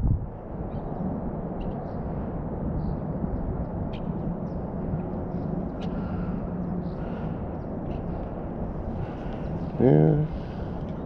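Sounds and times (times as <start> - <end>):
low outdoor rumble: 3.2 - 11.0.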